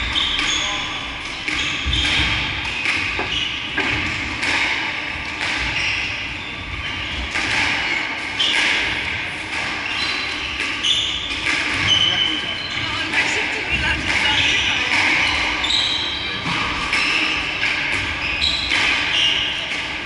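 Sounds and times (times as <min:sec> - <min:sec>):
squash ball knocks: 0:07.2 - 0:09.8
shoes squeaking on wooden floor: 0:09.8 - 0:16.4.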